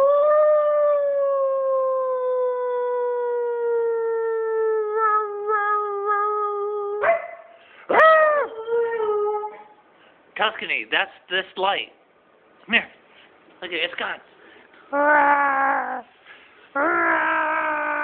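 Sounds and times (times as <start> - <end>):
dog howling: 0.0 - 9.8, 16.8 - 18.0.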